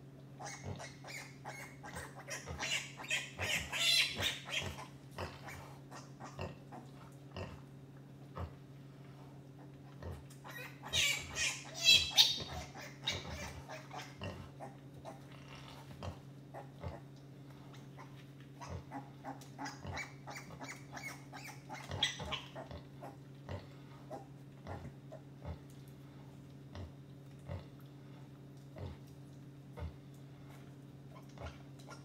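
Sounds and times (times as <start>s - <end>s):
steady low hum: 0.0s - 32.0s
piglets squealing: 0.4s - 6.8s, 10.4s - 15.2s, 18.0s - 23.2s.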